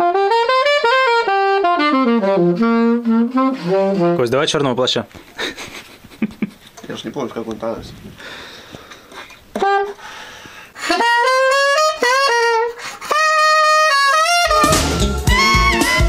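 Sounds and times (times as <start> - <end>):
alto saxophone playing: 0.0 - 4.4, 9.5 - 16.0
backing track with bass: 11.0 - 16.0.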